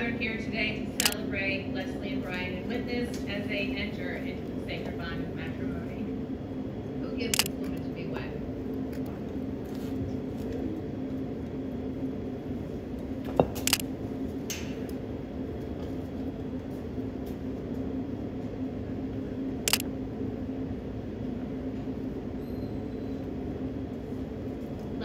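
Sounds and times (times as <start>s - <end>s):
steady low hum: 0.0s - 25.0s
camera shutter clicks: 7.3s - 7.5s, 13.6s - 13.8s, 19.7s - 19.9s.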